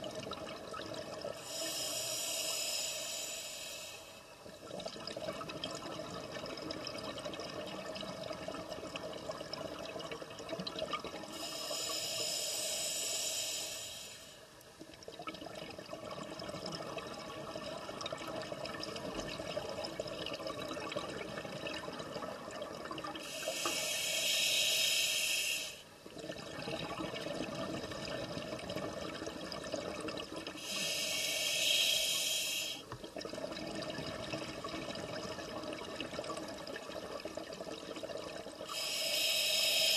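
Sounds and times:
exhaled air bubbling: 0:00.0 - 0:14.1, 0:14.7 - 0:39.9
regulator hissing inhalations: 0:01.4 - 0:04.3, 0:11.3 - 0:14.5, 0:23.2 - 0:25.9, 0:30.6 - 0:32.9, 0:38.7 - 0:39.9.

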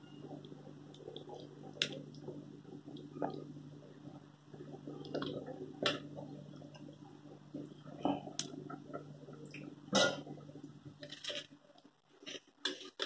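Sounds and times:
thick curry bubbling in a pot: 0:00.0 - 0:13.0
bubbles popping: 0:00.3 - 0:10.7.

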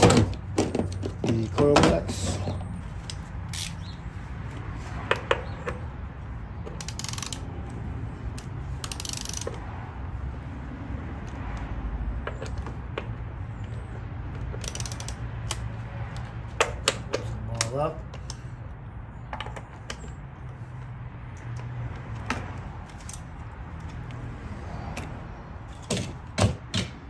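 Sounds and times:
hand ratchet clicking: 0:03.0 - 0:03.8, 0:06.7 - 0:07.5, 0:08.3 - 0:09.6, 0:14.4 - 0:15.7.

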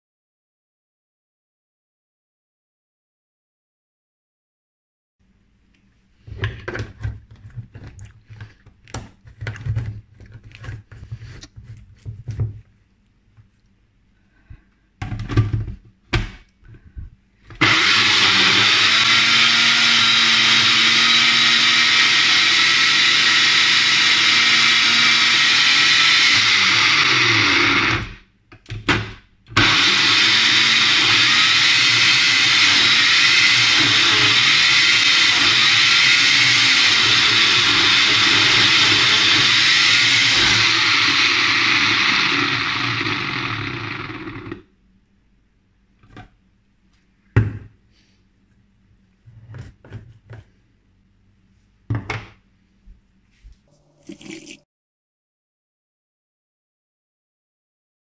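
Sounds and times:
blender blending: 0:17.6 - 0:28.2, 0:29.6 - 0:44.6, 0:53.7 - 0:54.6.

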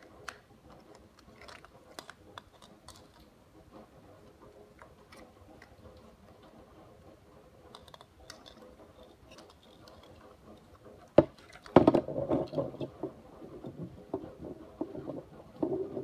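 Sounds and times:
plastic parts clicking: 0:00.0 - 0:03.3, 0:07.7 - 0:16.0
clattering handling noise: 0:07.7 - 0:16.0.

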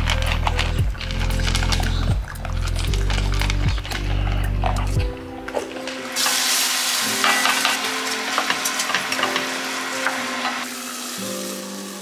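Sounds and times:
rice sizzling in a pot: 0:05.5 - 0:12.0.

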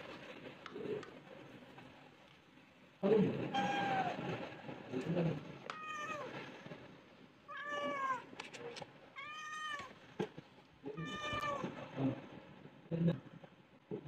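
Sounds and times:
cat meowing: 0:03.5 - 0:04.3, 0:05.7 - 0:06.4, 0:07.5 - 0:08.4, 0:09.2 - 0:10.0, 0:10.9 - 0:11.8.

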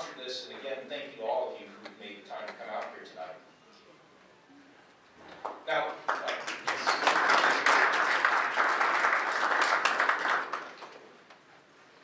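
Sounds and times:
audience applauding: 0:05.4 - 0:11.1.

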